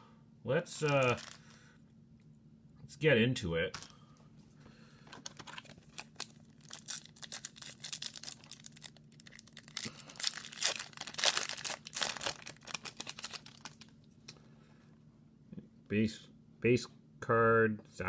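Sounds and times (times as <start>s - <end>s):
foil wrapper crinkling: 0.8s - 1.5s, 5.2s - 13.9s.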